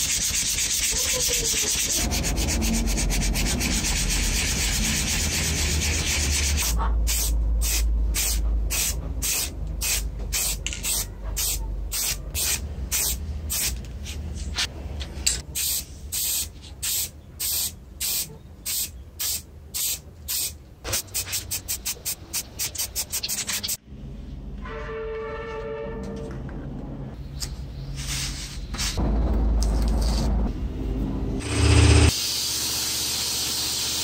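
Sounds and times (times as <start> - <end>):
spray paint hissing in bursts: 0.0 - 13.8, 15.6 - 23.8, 31.7 - 34.0.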